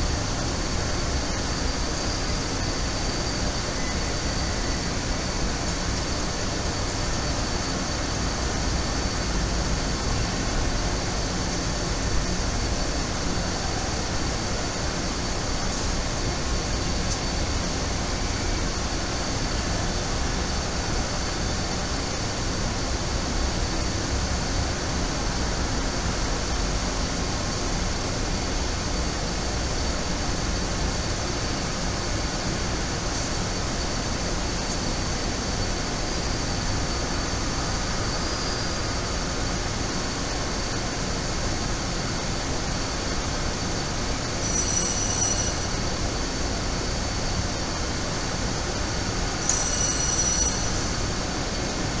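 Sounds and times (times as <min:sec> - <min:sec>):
rolling mill machinery noise: 0:00.0 - 0:52.0
thin high whine: 0:44.1 - 0:47.6, 0:48.8 - 0:52.0
brief high-pitched squeal: 0:44.4 - 0:45.7.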